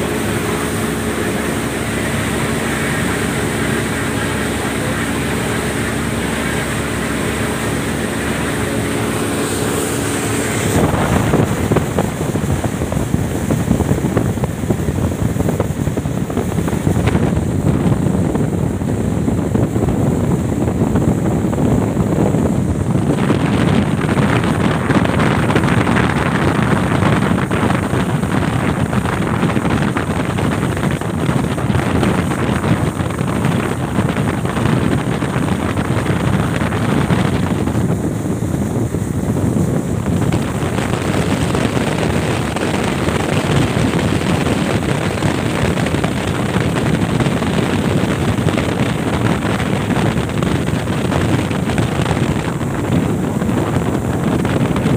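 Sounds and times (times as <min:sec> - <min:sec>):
speedboat engine drone: 0:00.0 - 0:54.9
water rushing past hull: 0:00.0 - 0:54.9
wind buffeting microphone: 0:00.0 - 0:54.9.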